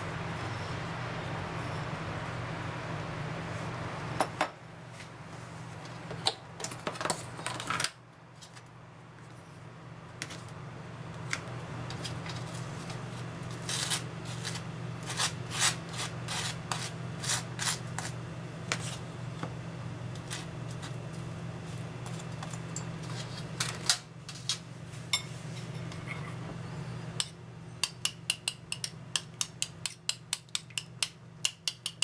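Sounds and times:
steady low hum: 0.0 - 32.0
knife scraping toast: 13.5 - 19.0.

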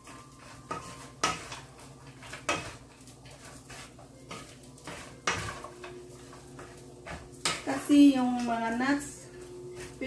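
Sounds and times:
wooden spatula scraping frying pan: 0.0 - 10.0.

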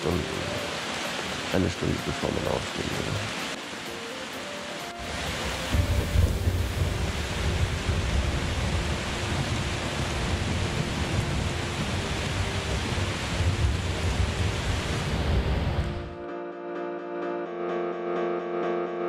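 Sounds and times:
heavy rain drumming on roof: 0.0 - 16.0
thunder rumbling: 5.7 - 16.1.

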